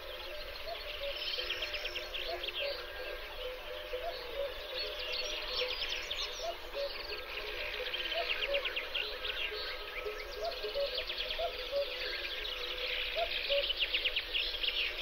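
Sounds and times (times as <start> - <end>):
birds singing in chorus: 0.0 - 15.0.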